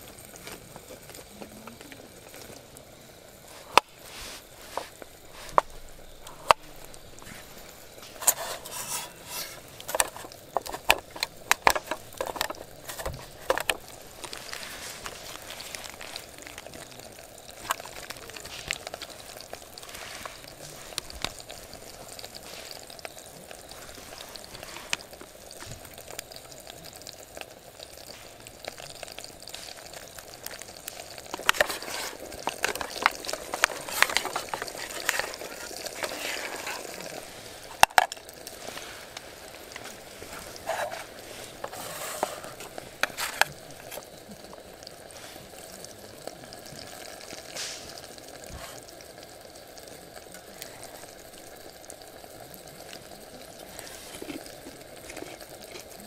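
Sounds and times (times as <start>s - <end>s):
steady hiss: 0.0s - 56.0s
spoon squelching and scraping dip: 31.3s - 37.3s.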